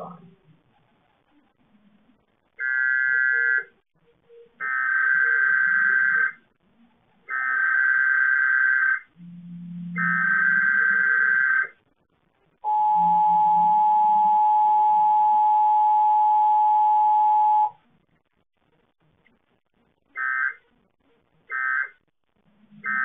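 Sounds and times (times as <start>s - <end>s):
two-tone attention signal: 12.7s - 17.8s.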